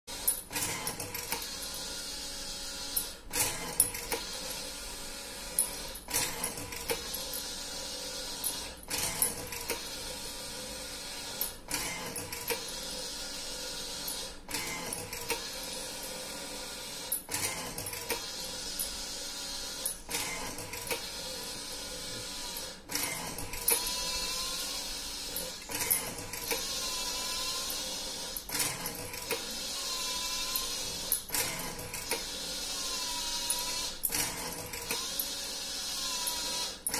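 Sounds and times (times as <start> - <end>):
electric motor hum: 0.1 - 36.9
machine sharp clicks: 22.5 - 29.7, 30.4 - 32.4, 33.3 - 36.9.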